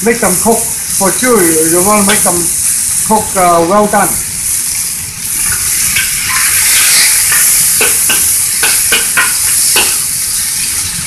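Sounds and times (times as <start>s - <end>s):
chicken sizzling in a wok: 0.0s - 11.0s
metal spatula scraping a wok: 4.5s - 11.0s.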